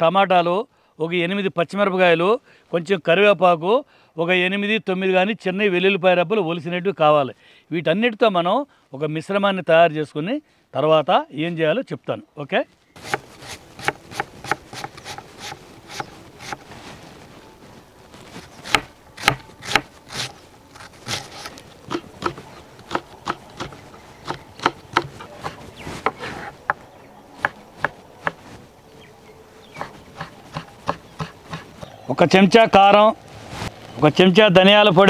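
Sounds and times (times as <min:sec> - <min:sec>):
knife chopping on wooden board: 0:13.0 - 0:16.6, 0:18.6 - 0:26.8, 0:29.8 - 0:31.9.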